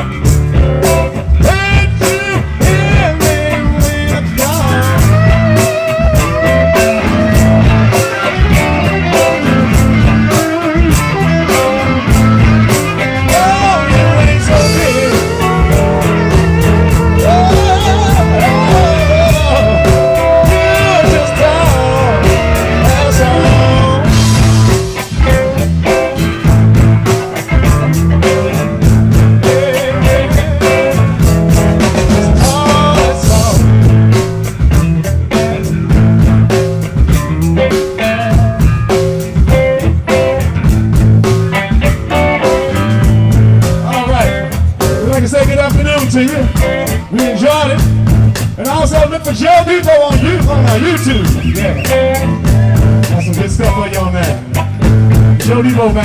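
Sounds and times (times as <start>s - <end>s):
bass: 0.0s - 56.0s
drums keeping a steady beat: 0.0s - 56.0s
electric guitar lead: 0.0s - 56.0s.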